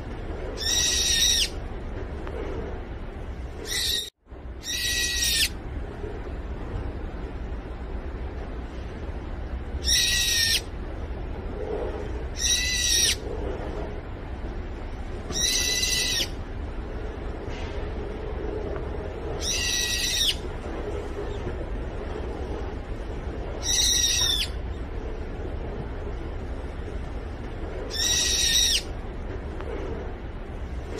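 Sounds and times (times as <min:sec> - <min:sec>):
low background rumble: 0:00.0 - 0:30.9
bird calling loudly: 0:00.6 - 0:01.6, 0:03.6 - 0:05.6, 0:09.8 - 0:10.7, 0:12.4 - 0:13.2, 0:15.3 - 0:16.3, 0:19.4 - 0:20.4, 0:23.6 - 0:24.6, 0:27.9 - 0:28.9.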